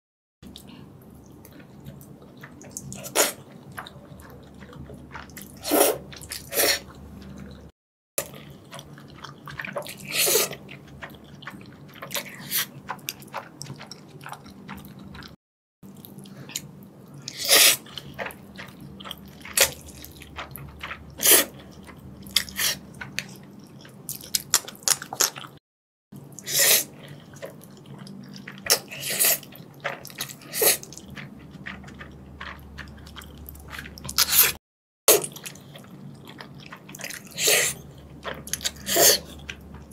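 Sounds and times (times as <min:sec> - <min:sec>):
wet chewing: 0:00.4 - 0:25.6, 0:26.2 - 0:39.9
loud noodle slurps: 0:03.0 - 0:03.4, 0:05.4 - 0:06.9, 0:09.7 - 0:10.6, 0:17.3 - 0:17.9, 0:21.2 - 0:21.6, 0:26.4 - 0:27.0, 0:28.7 - 0:29.5, 0:30.2 - 0:31.0, 0:33.7 - 0:35.3, 0:37.2 - 0:37.8, 0:38.6 - 0:39.4.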